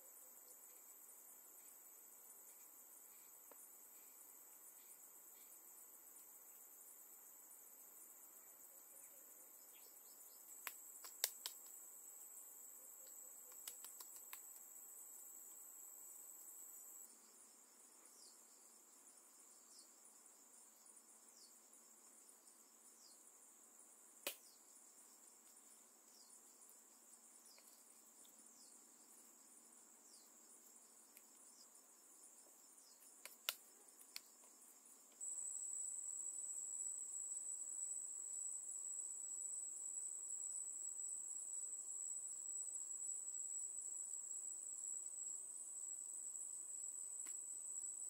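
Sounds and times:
loud insect drone: 0:00.0 - 0:48.0
sharp clicks: 0:13.5 - 0:14.5
insects trilling high-pitched: 0:24.3 - 0:48.0.

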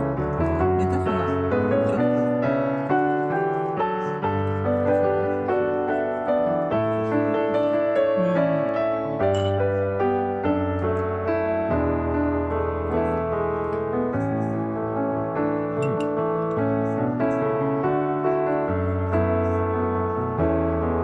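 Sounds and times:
piano music: 0:00.0 - 0:21.0.

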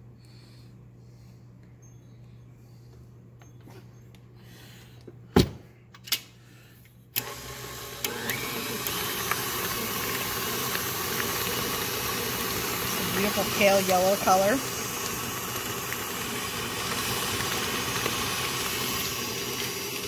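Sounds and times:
stand mixer motor running: 0:07.2 - 0:20.0.

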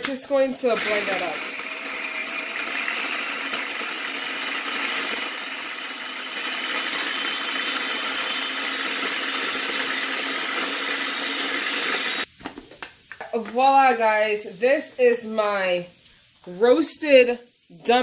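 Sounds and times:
food processor running: 0:00.7 - 0:12.3.

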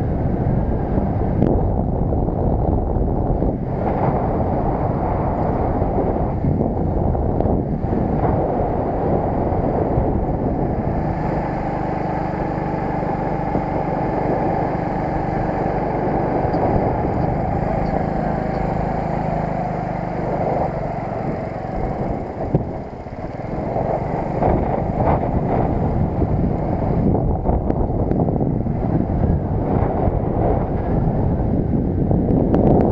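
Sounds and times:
moped engine humming: 0:00.0 - 0:32.5
wind buffeting microphone: 0:00.0 - 0:32.9.

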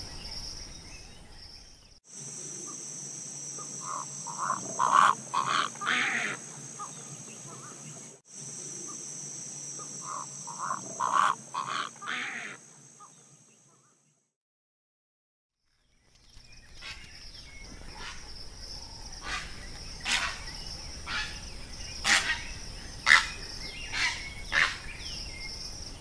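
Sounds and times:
high insect trill: 0:00.0 - 0:13.5, 0:15.8 - 0:26.0
croaking calls: 0:03.6 - 0:09.0, 0:09.8 - 0:14.0, 0:16.7 - 0:25.4.

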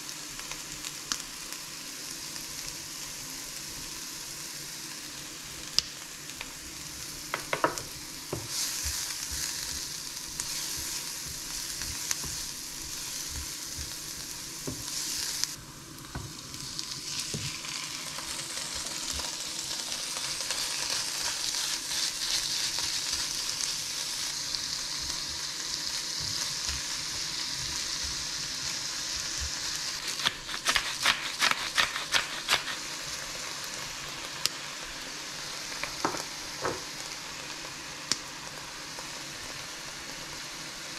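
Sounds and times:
onion sizzling in a frying pan: 0:00.0 - 0:40.9
spatula stirring in a pan: 0:08.2 - 0:15.6, 0:20.0 - 0:33.1.

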